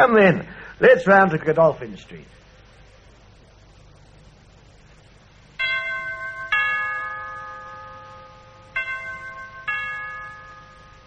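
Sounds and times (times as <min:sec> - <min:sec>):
two-note bell chime: 0:05.6 - 0:11.0.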